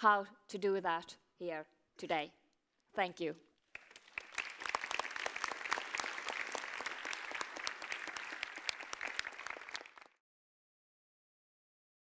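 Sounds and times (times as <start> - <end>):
audience applauding: 3.7 - 10.2.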